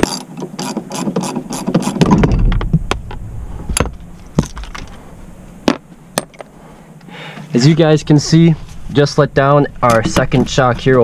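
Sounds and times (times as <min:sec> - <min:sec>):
low rumbling clatter: 0:02.0 - 0:05.6.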